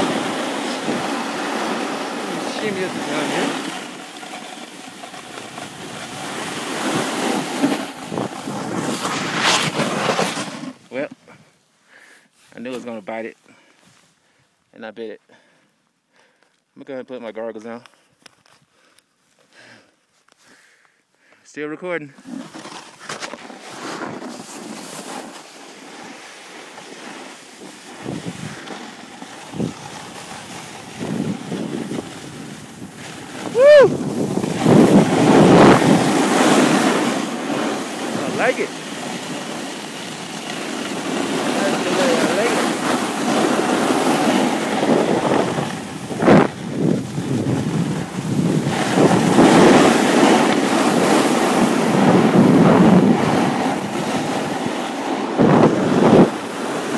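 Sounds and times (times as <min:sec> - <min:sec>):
snowboard scraping over snow: 0:00.0 - 0:11.2, 0:22.1 - 0:56.9
wind buffeting microphone: 0:05.4 - 0:10.0, 0:28.0 - 0:28.7, 0:29.5 - 0:56.9.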